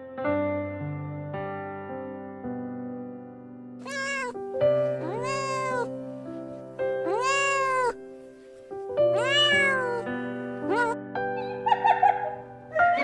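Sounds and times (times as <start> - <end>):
piano music: 0.0 - 13.0
cat meowing: 3.8 - 8.1, 9.1 - 11.0.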